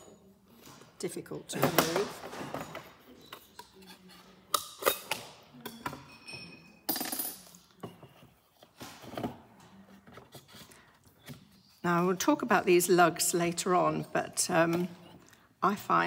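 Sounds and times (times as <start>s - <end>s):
metal tools clinking on table: 4.9s - 7.6s.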